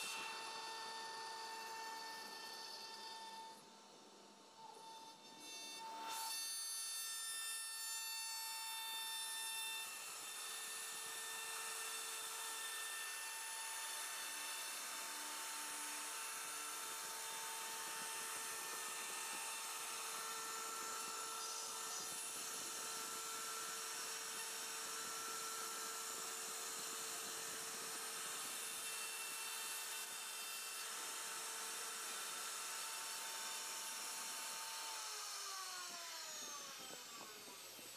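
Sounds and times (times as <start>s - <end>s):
router spindle high whine: 0.0s - 37.9s.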